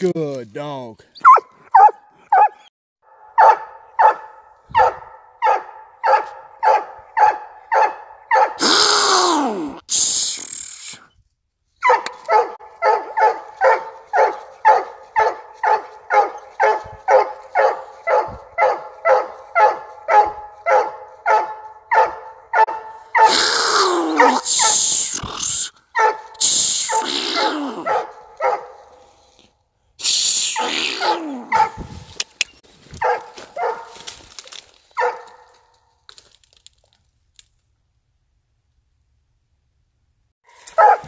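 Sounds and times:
dog crying: 1.2 - 2.7, 23.1 - 28.0, 30.1 - 31.8
dog barking: 1.2 - 8.6, 11.8 - 23.6, 24.2 - 24.9, 25.9 - 29.0, 31.0 - 31.9, 33.0 - 34.0, 35.0 - 35.5, 40.5 - 41.0.

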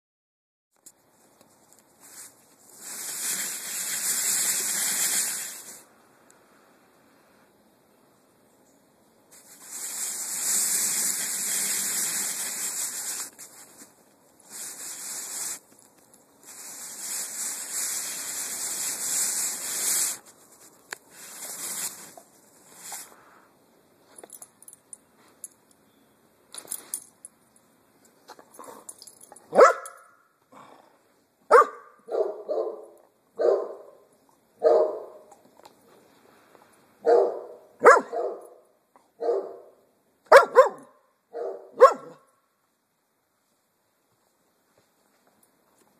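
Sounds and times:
rushing hiss: 2.0 - 7.4, 9.3 - 23.5
dog barking: 29.5 - 30.1, 31.5 - 34.0, 34.6 - 35.3, 37.0 - 38.6, 39.2 - 42.2.

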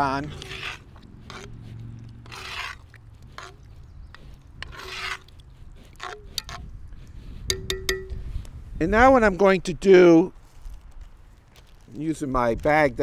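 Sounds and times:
metal spoon scraping thick stew: 0.0 - 8.4.

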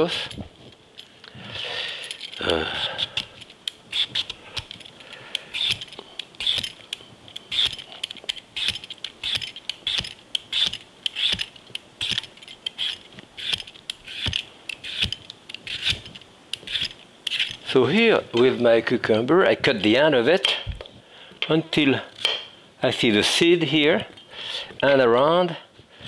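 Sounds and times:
peeler scraping cucumber skin: 2.8 - 4.7, 5.4 - 17.6.

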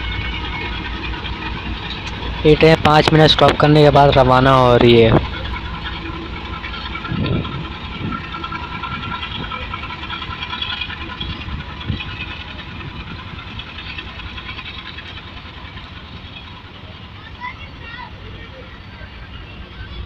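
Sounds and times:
train wheels thudding over rail joints: 0.0 - 17.2
diesel locomotive engine running: 0.0 - 20.0.

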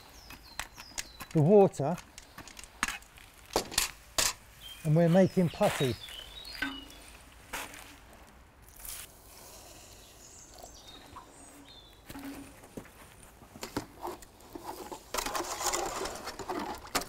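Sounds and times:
trowel scraping in metal bucket: 14.0 - 17.0.

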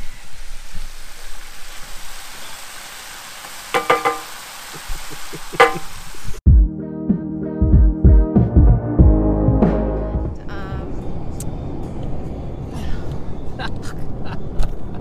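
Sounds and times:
mince sizzling in a skillet: 0.1 - 6.4.

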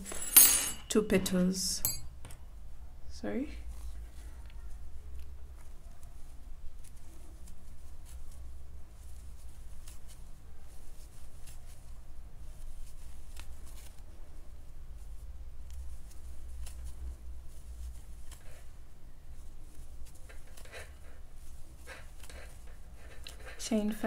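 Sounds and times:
low steady hum: 0.0 - 7.6
yarn rustling: 5.6 - 24.0.

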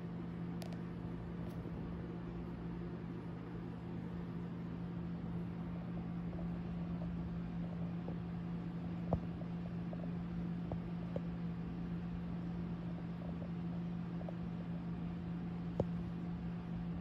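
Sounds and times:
low mechanical hum: 0.0 - 17.0
small click: 0.6 - 0.8.

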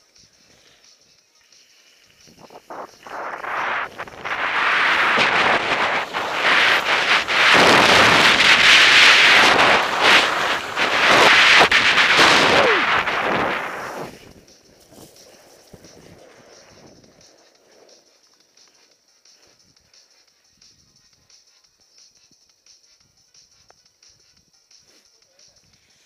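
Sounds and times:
skis skidding to a stop: 1.5 - 18.2
skis scraping on snow: 1.6 - 19.6
wind on microphone: 2.2 - 17.2.

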